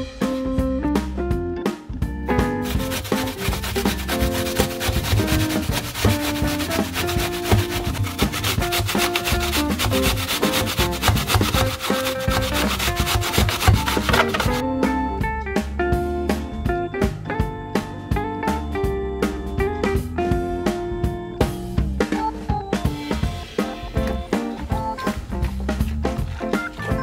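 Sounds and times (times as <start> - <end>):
background music: 0.0 - 27.0
apple grated on metal grater: 2.6 - 14.6.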